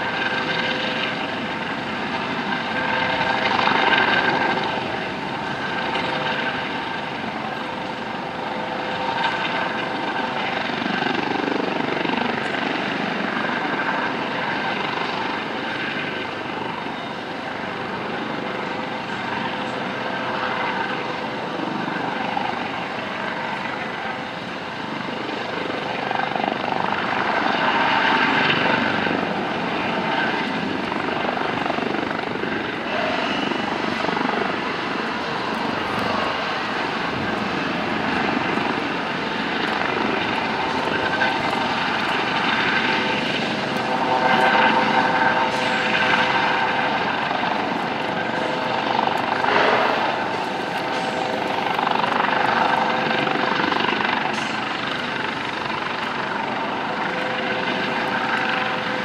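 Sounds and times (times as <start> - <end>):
helicopter hovering: 0.0 - 59.0.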